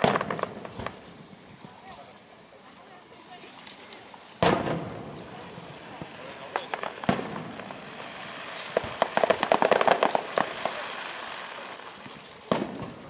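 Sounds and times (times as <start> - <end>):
firework bang: 0.0 - 1.2, 4.4 - 11.7, 12.4 - 13.0
fireworks crackling pops: 0.0 - 13.0.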